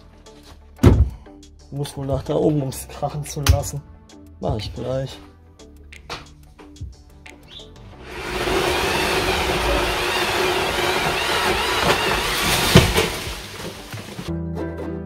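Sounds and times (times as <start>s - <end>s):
chainsaw engine running hard: 8.0s - 14.3s.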